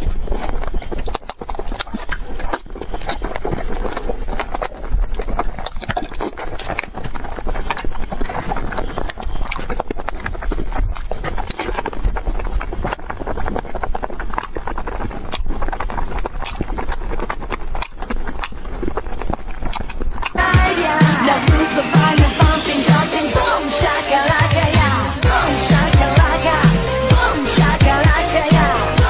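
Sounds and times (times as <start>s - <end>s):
small animal chewing with clicks: 0.0s - 20.5s.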